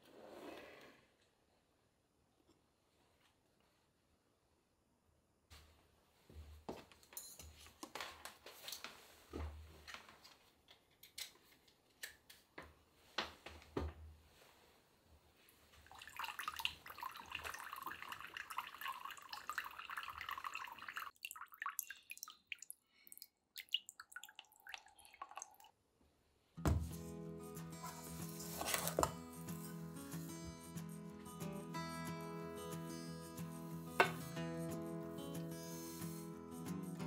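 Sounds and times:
water trickling and dripping: 15.8s - 25.8s.

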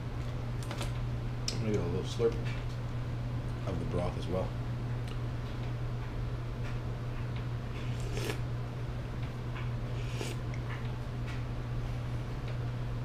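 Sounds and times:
person slurping broth: 7.8s - 8.4s, 9.9s - 10.4s.

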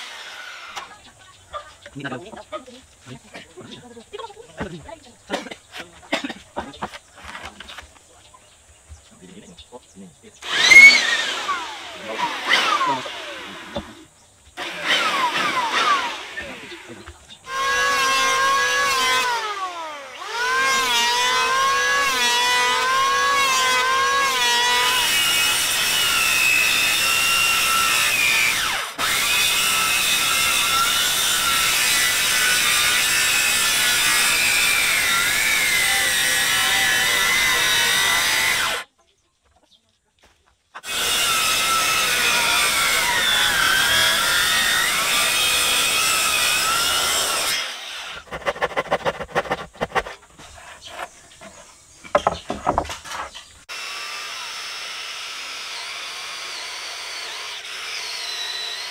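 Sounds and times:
grinding into wood: 0.0s - 1.0s, 10.4s - 38.8s, 40.8s - 53.6s
power tool motor whine: 0.0s - 1.0s, 10.4s - 38.8s, 40.8s - 50.1s.

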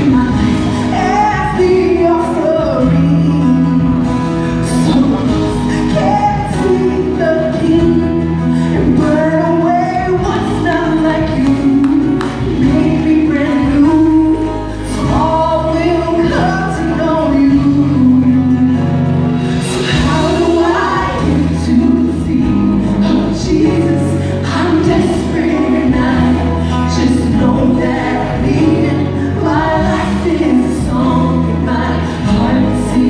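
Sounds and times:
backing singers: 0.0s - 33.0s
band accompaniment with bass: 0.0s - 33.0s
woman singing lead: 0.0s - 33.0s.

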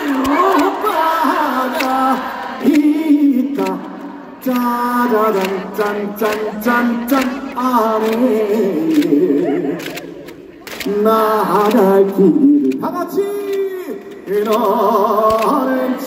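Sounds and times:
man singing through microphone: 0.0s - 16.0s
sharp handclaps: 5.3s - 7.4s.

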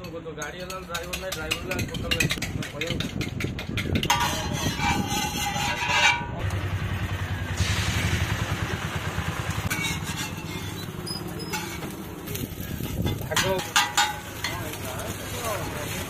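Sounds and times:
egg sizzling on a griddle: 7.4s - 16.0s.

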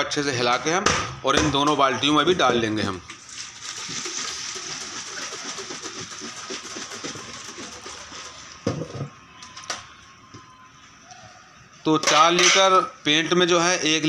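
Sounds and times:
paint pouring into a bucket: 3.1s - 8.6s.

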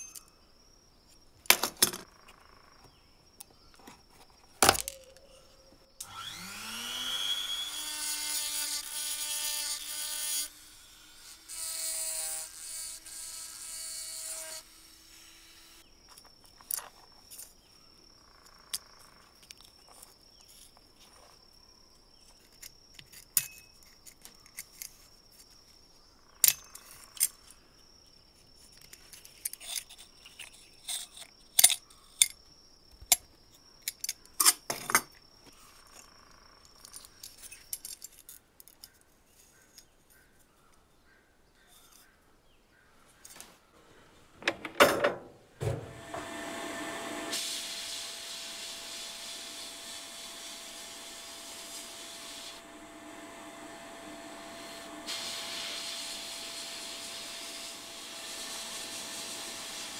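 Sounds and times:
power tool motor whining: 6.0s - 15.8s, 45.6s - 59.9s
metal parts clicking and tapping: 28.8s - 32.4s, 33.0s - 35.2s, 36.8s - 39.9s.

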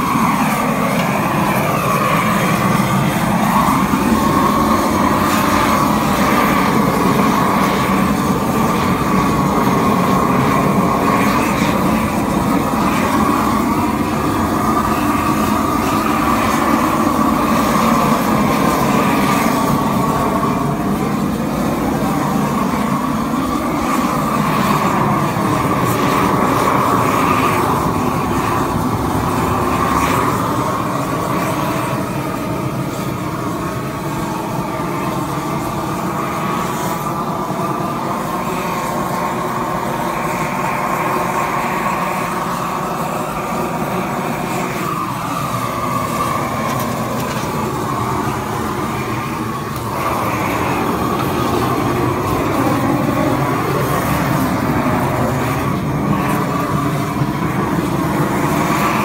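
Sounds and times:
roofing torch burning: 0.0s - 59.0s.

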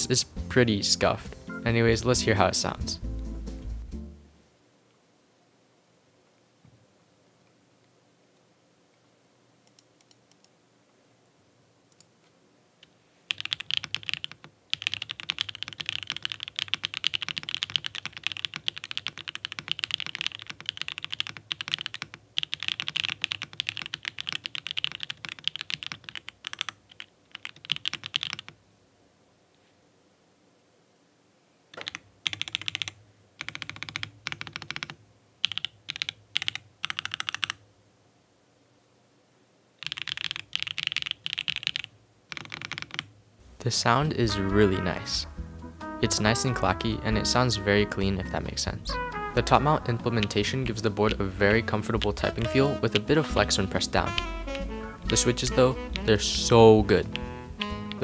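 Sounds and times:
mechanical keyboard typing: 13.3s - 28.6s, 31.7s - 37.6s, 39.8s - 43.1s.

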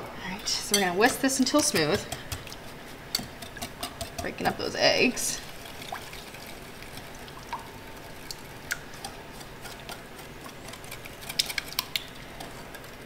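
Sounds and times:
whisk clicking against glass bowl: 0.7s - 4.5s.

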